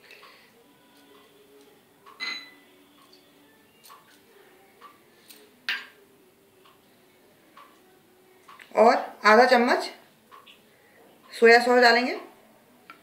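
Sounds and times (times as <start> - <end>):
spoon and bowls clinking on glass: 2.1 - 3.2.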